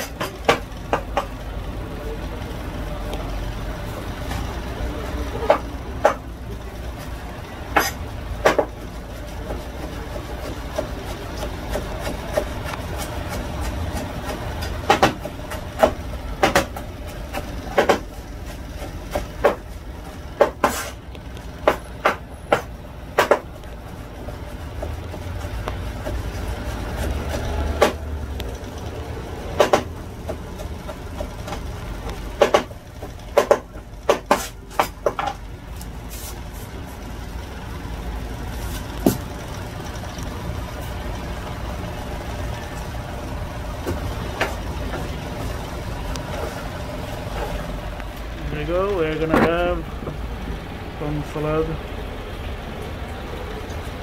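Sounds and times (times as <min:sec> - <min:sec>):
knife chopping on cutting board: 0:07.7 - 0:08.8, 0:09.4 - 0:21.0, 0:21.6 - 0:23.5, 0:24.8 - 0:28.0, 0:29.6 - 0:31.6, 0:32.4 - 0:32.7, 0:33.3 - 0:35.4.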